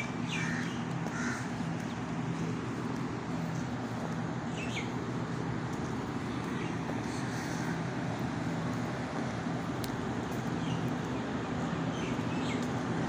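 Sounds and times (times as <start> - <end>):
crows cawing: 0.3 - 1.6.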